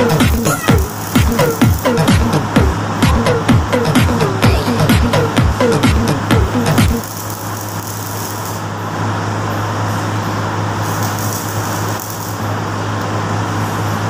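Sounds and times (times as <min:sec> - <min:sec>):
low hum: 0:00.0 - 0:07.0
welding arc crackling: 0:00.0 - 0:08.8, 0:10.7 - 0:12.9.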